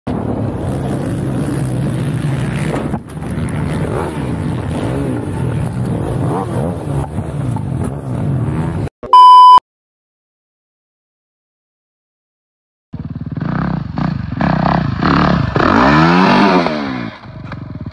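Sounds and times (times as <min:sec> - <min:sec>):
quad engines revving: 0:00.6 - 0:08.9, 0:13.2 - 0:17.9
loud electronic beep: 0:09.0 - 0:09.6.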